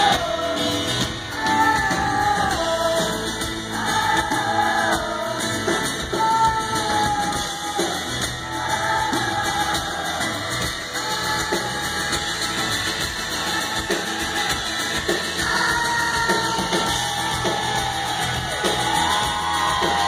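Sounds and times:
woman singing: 0.0 - 10.3, 15.4 - 18.2
live rock band: 0.0 - 20.0.

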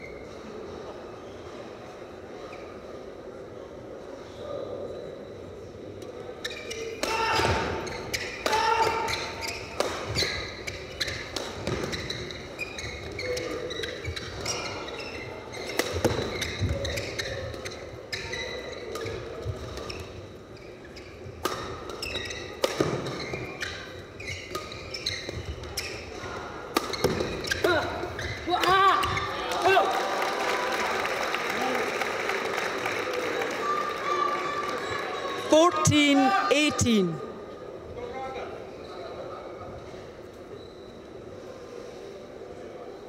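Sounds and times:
shoes squeaking on court: 6.3 - 29.4, 40.3 - 41.2
rackets hitting shuttlecock: 21.4 - 23.5, 26.7 - 28.0.

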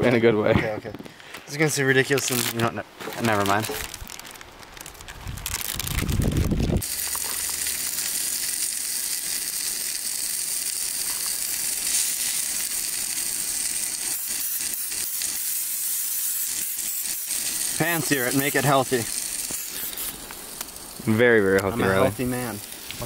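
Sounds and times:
fish sizzling in a pan: 6.8 - 23.0.

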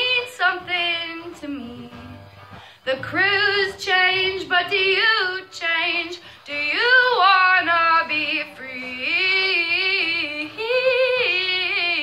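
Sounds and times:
woman singing long notes: 2.8 - 12.0.

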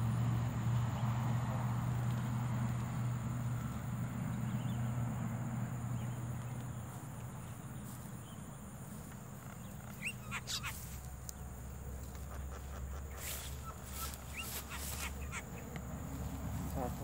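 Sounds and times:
birds chirping and calling: 7.4 - 17.0.

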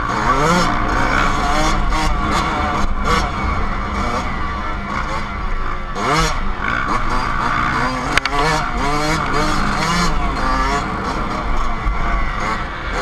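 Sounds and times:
dirt bike engine revving: 0.0 - 13.0
wind on microphone: 8.1 - 12.7.

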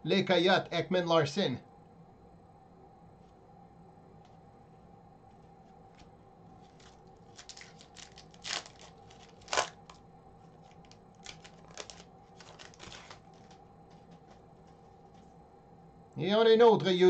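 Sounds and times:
foil wrapper crinkling: 6.6 - 15.2
foil wrapper ripping: 6.7 - 10.0, 10.6 - 13.6.

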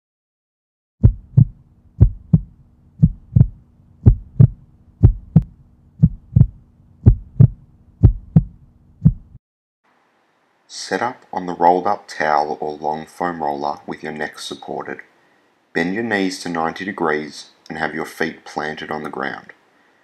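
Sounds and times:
faint low hum: 1.0 - 9.4
heartbeat thumps: 1.0 - 9.4.

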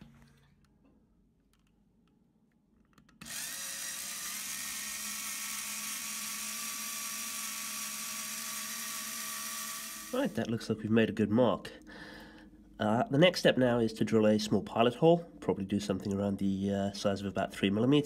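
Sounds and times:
electric screwdriver whining: 3.2 - 10.3.

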